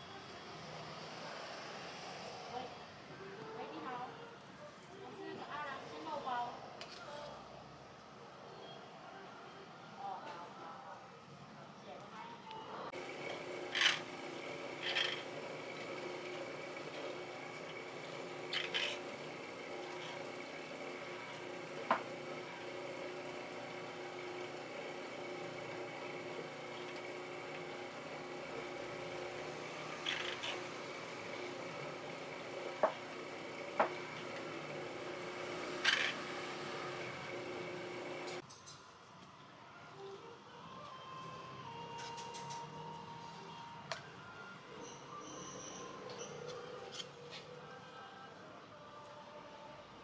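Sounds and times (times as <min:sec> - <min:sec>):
steady machine hum: 0:12.9 - 0:38.4
metal spatula scraping tray: 0:14.8 - 0:15.3.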